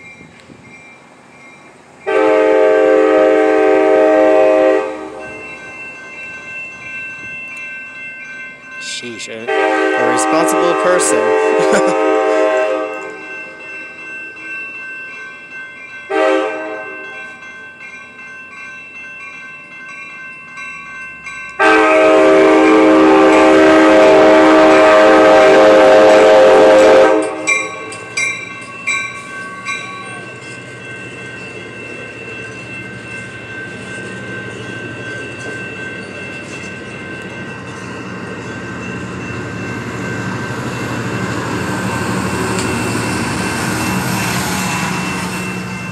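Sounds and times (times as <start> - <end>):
crossing bell ringing: 0.0 - 45.9
train rumble: 0.0 - 45.9
train horn blasts: 2.1 - 5.4, 9.4 - 13.2, 16.1 - 17.1, 21.6 - 27.9.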